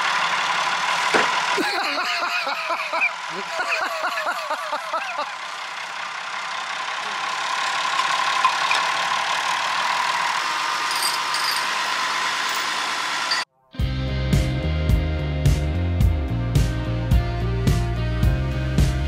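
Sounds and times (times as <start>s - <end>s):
tractor diesel engine under load: 0.0s - 13.5s
voices: 1.6s - 5.4s.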